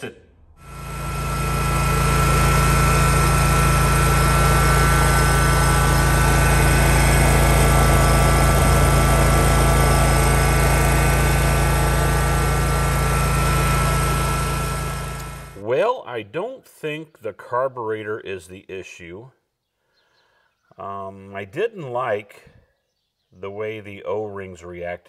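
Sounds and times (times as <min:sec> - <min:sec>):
mower engine running: 0:00.6 - 0:15.7.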